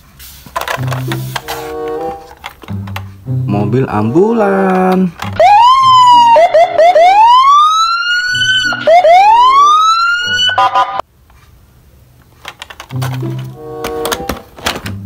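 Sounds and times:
ambulance siren wailing: 5.3 - 11.0.

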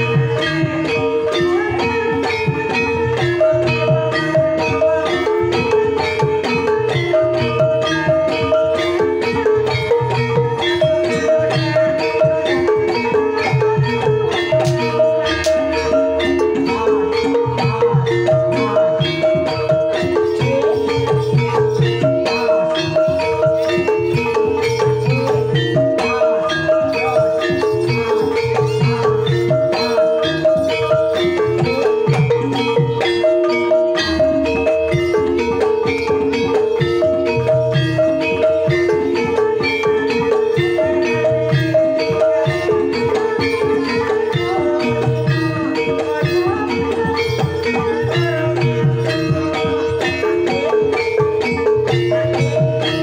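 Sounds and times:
hand drum: 0.0 - 53.0.

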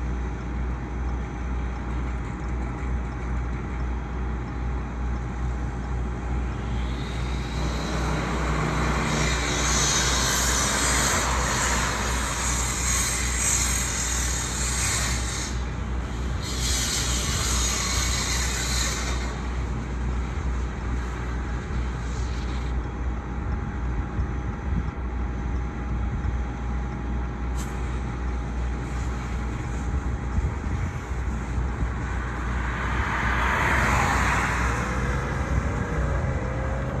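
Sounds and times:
fire engine rumbling: 0.0 - 37.0
rush of noise: 29.0 - 37.0.

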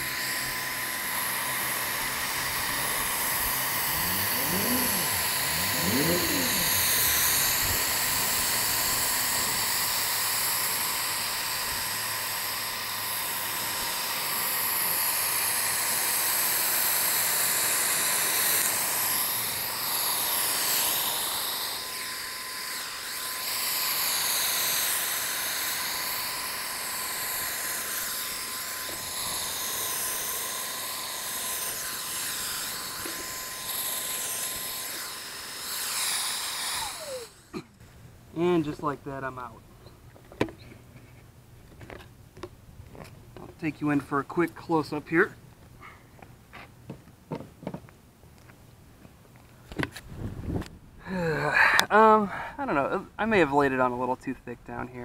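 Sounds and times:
spray gun air hiss: 0.0 - 11.9, 14.3 - 37.4
paint sprayer turbine whine: 0.0 - 45.4.

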